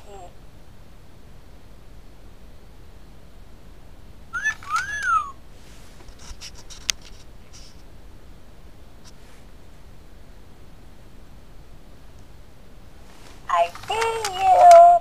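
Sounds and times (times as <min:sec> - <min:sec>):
steady low hiss: 0:00.0 - 0:15.0
short high squeak: 0:04.4 - 0:05.3
light clicks: 0:06.0 - 0:07.9, 0:13.2 - 0:14.8.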